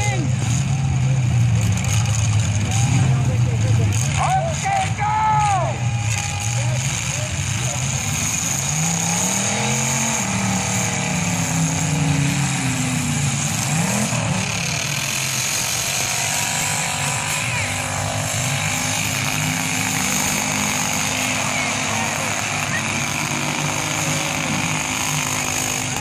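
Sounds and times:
pickup truck engines revving: 0:00.0 - 0:26.0.

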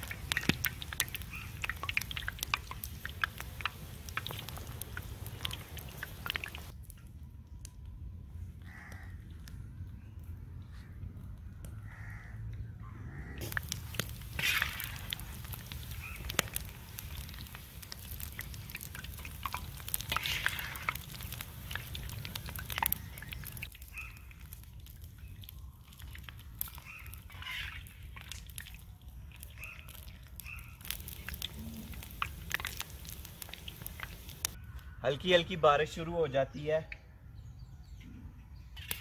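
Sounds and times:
birds calling: 0:00.0 - 0:06.7, 0:11.9 - 0:17.4, 0:18.2 - 0:24.6, 0:26.6 - 0:28.3, 0:29.3 - 0:35.6
food sizzling in hot oil: 0:00.0 - 0:06.7, 0:13.4 - 0:34.6
metal skimmer stirring oil: 0:00.0 - 0:06.7, 0:13.4 - 0:23.8.

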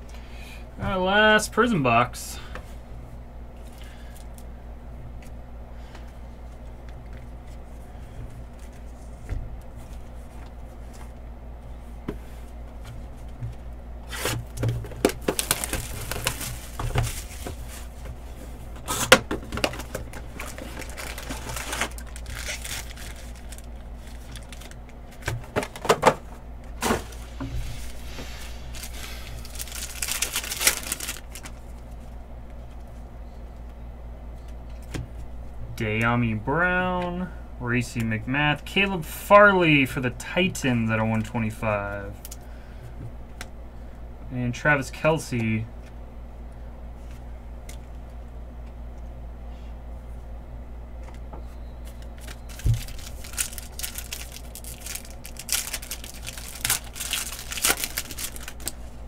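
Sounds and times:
steady low hum: 0:00.0 - 0:59.0
packs tearing and wrapper crinkling: 0:14.1 - 0:17.8, 0:18.9 - 0:25.8, 0:28.7 - 0:31.8, 0:51.9 - 0:58.9.

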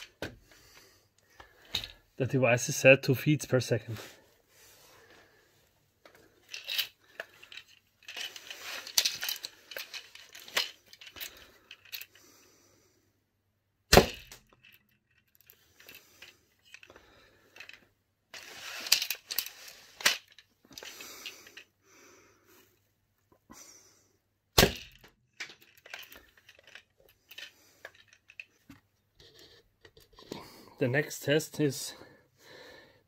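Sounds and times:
rustling and clicking of launcher: 0:06.5 - 0:12.1, 0:17.6 - 0:21.6, 0:24.6 - 0:30.1.

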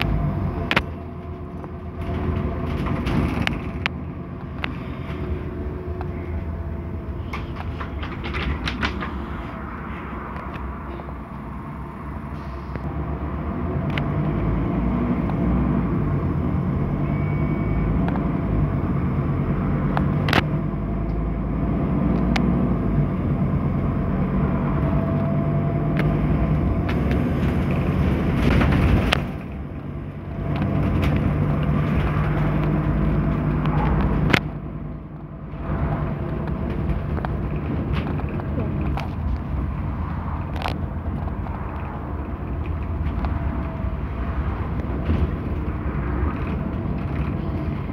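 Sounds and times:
bus diesel engine rumble: 0:00.0 - 0:47.9
body rattles and knocks: 0:00.7 - 0:05.3, 0:07.2 - 0:09.5, 0:26.0 - 0:34.4, 0:35.8 - 0:47.9.

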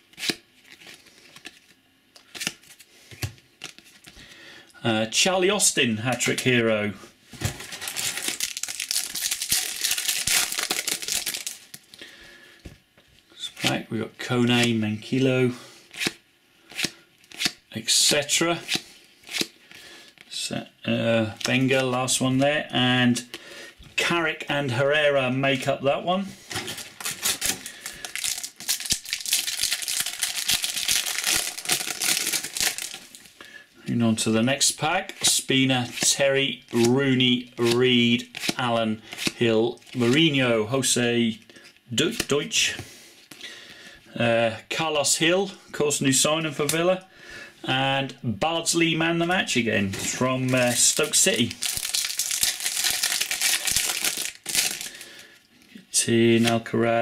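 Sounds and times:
trading cards crinkling and rustling: 0:00.1 - 0:04.2, 0:07.4 - 0:12.1, 0:21.3 - 0:22.4, 0:26.4 - 0:33.4, 0:35.0 - 0:40.4, 0:49.4 - 0:55.8
wrapper tearing open: 0:07.6 - 0:11.9, 0:26.6 - 0:33.3, 0:50.5 - 0:55.0.

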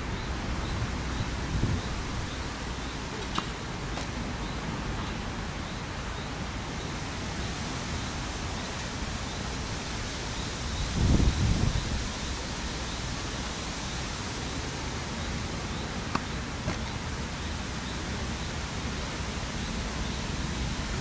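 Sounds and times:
wind on microphone: 0:00.0 - 0:02.6, 0:10.6 - 0:12.5.

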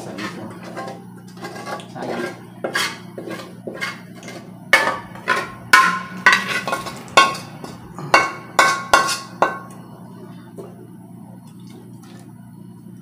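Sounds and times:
metal utensil clinking on pot: 0:00.2 - 0:09.8.

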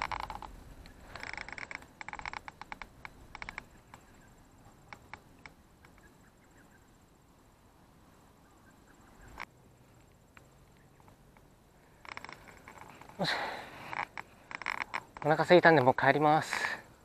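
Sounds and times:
fishing reel clicking: 0:00.0 - 0:03.7, 0:12.0 - 0:15.6
open-air background: 0:00.0 - 0:17.0.

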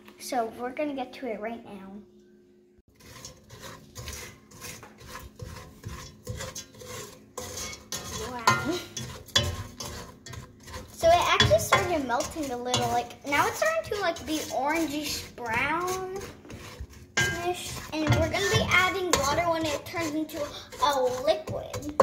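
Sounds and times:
spoon scraping sugar in pot: 0:02.9 - 0:22.0.

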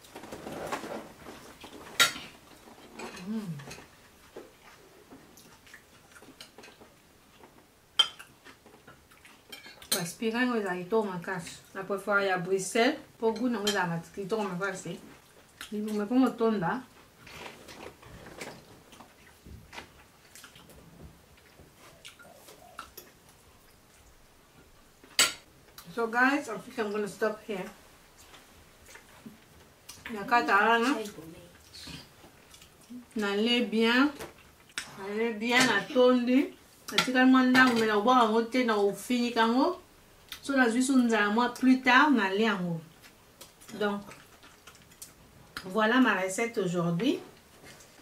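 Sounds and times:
chewing food: 0:02.5 - 0:09.9, 0:17.5 - 0:24.3, 0:31.0 - 0:33.2, 0:34.2 - 0:35.0, 0:42.9 - 0:45.7
person humming mmm: 0:03.2 - 0:03.7.

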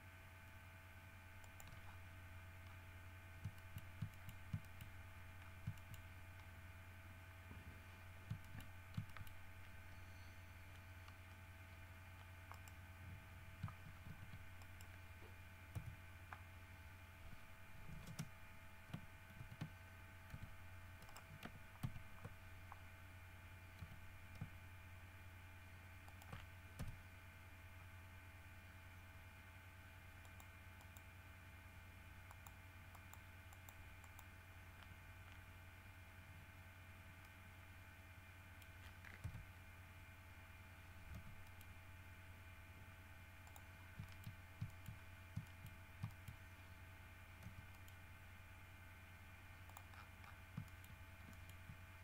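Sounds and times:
faint electrical hum: 0:00.0 - 0:52.0
mouse and keyboard clicks: 0:01.4 - 0:02.0, 0:03.4 - 0:06.5, 0:08.2 - 0:09.8, 0:12.1 - 0:12.8, 0:15.7 - 0:16.4, 0:17.8 - 0:18.3, 0:18.9 - 0:22.8, 0:23.7 - 0:24.6, 0:26.1 - 0:27.0, 0:30.2 - 0:31.1, 0:38.6 - 0:39.5, 0:43.4 - 0:46.4, 0:47.4 - 0:48.0, 0:49.6 - 0:51.8.

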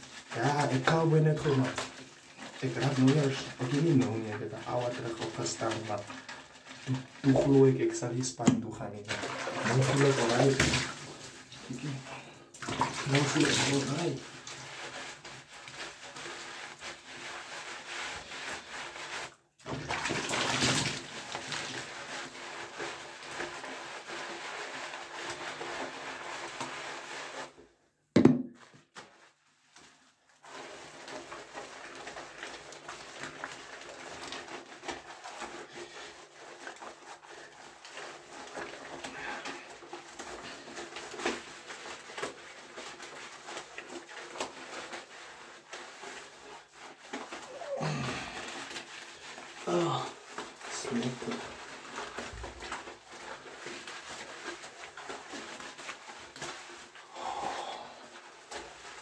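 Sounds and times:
washcloth rubbing and sloshing: 0:00.0 - 0:59.0
sharp knock: 0:28.2 - 0:28.5.

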